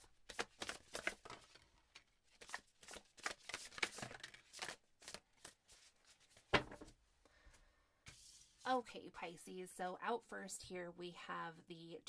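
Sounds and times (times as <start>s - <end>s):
cards shuffling and flicking: 0.1s - 6.9s.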